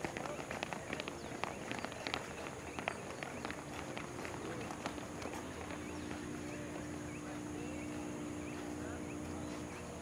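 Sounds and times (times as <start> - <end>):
children's footsteps on asphalt: 0.0 - 10.0
small bird chirping: 4.7 - 10.0.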